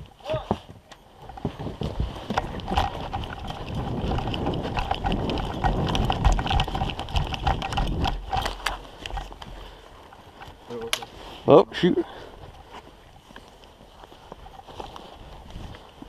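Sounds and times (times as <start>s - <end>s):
gear and rifle rattling: 0.0s - 16.0s
wind buffeting microphone: 1.2s - 9.8s
footsteps crunching through snow: 8.5s - 16.0s.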